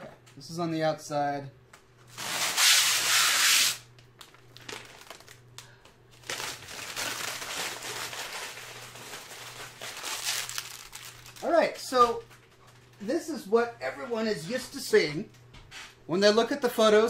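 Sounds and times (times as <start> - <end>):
plastic wrapping ripping off: 2.1 - 11.6
plastic wrapping crinkling: 4.0 - 12.9.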